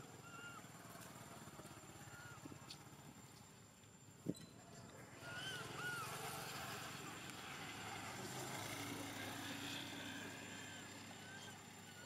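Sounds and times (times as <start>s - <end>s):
vehicle passing on road: 4.7s - 12.0s.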